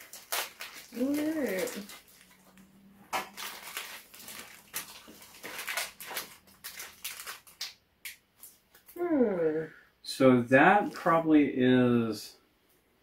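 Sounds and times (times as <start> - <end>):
plastic and foil packets crinkling: 0.0 - 9.0.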